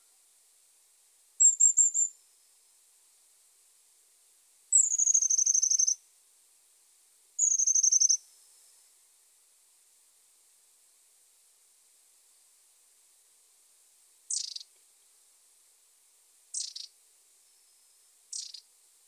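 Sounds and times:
small birds calling: 1.4s - 2.1s, 4.7s - 6.0s, 7.4s - 8.2s, 14.3s - 14.7s, 16.5s - 17.0s, 18.3s - 18.7s.

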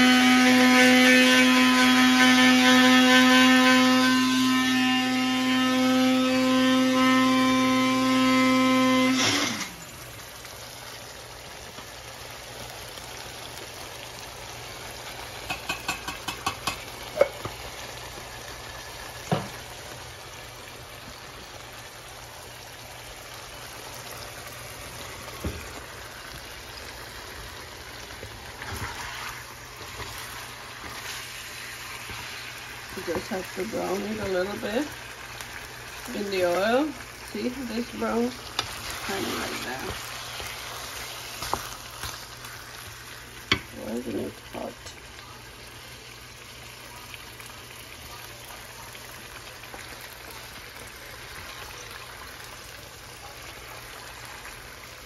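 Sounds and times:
spice grinder motor humming: 1.4s - 9.8s
wooden spatula knocking in metal pan: 15.5s - 17.5s.

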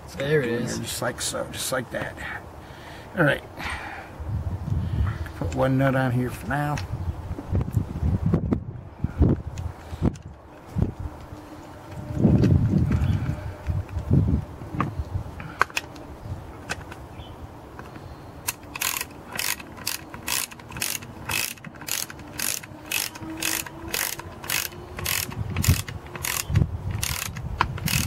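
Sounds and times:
ratchet wrench clicking: 18.5s - 28.0s.

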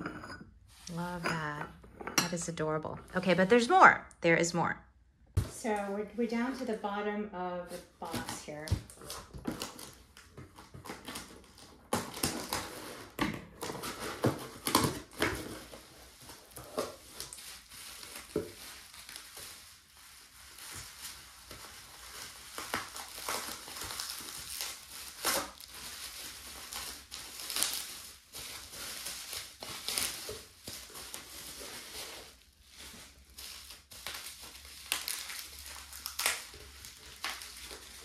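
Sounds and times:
bubble wrap crinkling: 7.6s - 38.0s.

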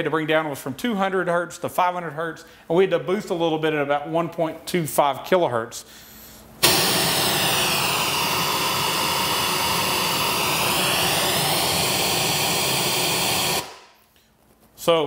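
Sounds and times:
loud steady pink noise hiss: 6.6s - 14.0s.

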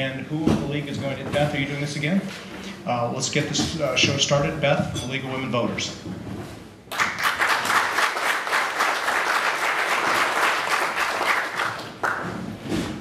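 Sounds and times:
audience applauding: 6.9s - 12.4s.

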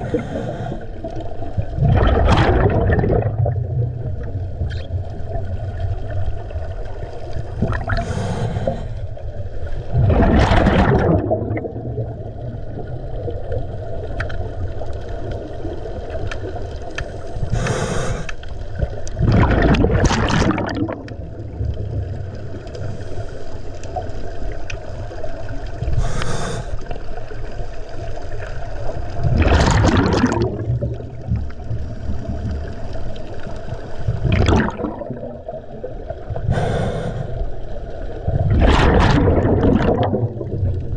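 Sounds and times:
scuba regulator inhalation hiss: 0.0s - 1.0s, 7.9s - 9.1s, 17.4s - 18.5s, 25.9s - 26.9s, 36.4s - 37.5s
bubbling exhaled air: 0.0s - 5.4s, 7.4s - 9.2s, 9.9s - 13.7s, 17.2s - 23.2s, 25.8s - 27.0s, 29.2s - 32.8s, 34.0s - 37.6s, 38.2s - 40.9s.

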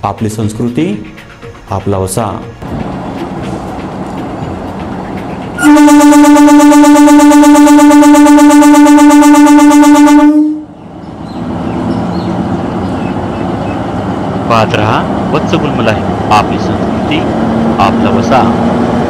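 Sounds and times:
train rumbling: 0.0s - 19.0s
train horn blast: 5.6s - 10.7s.

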